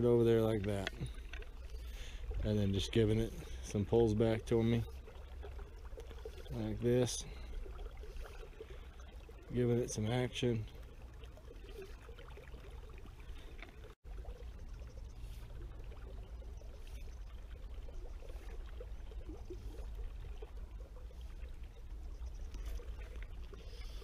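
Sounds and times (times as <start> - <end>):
flowing river water: 0.0 - 24.0.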